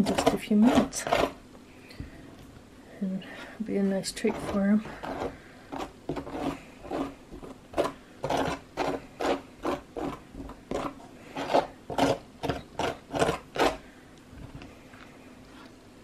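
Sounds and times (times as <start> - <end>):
knife spreading frosting: 0.0 - 1.4, 3.8 - 13.8.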